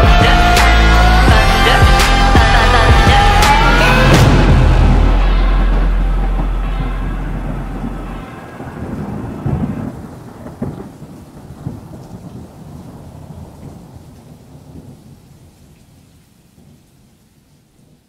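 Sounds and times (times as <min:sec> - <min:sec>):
thunder rumbling: 0:00.0 - 0:16.8
rain: 0:03.6 - 0:18.0.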